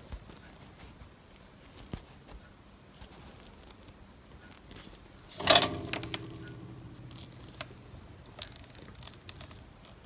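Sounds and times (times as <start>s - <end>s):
metallic scrape and rattle: 5.3s - 9.6s
spring ringing: 5.4s - 9.2s.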